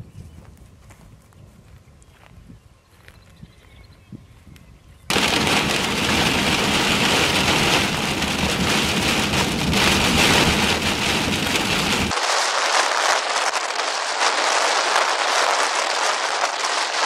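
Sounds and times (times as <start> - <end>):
heavy rain on vehicle windshield: 5.1 - 17.0.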